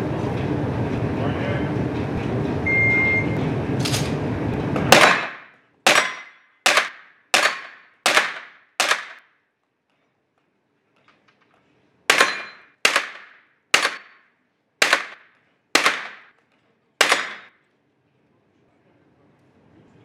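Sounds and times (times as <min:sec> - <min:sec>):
electronic timer beep: 0:02.7 - 0:03.4
pistol shots: 0:04.9 - 0:09.2, 0:12.1 - 0:14.2, 0:14.8 - 0:16.3, 0:17.0 - 0:17.5.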